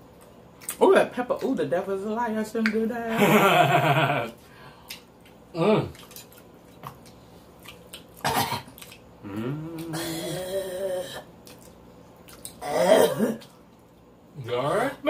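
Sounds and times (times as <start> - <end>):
mouth clicks and smacks chewing: 0.1 - 0.8, 4.8 - 9.1, 11.4 - 12.6.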